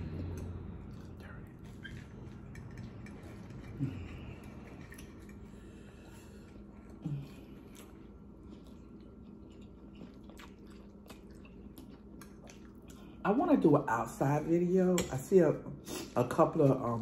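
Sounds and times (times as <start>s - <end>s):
wet chewing: 6.3s - 13.2s.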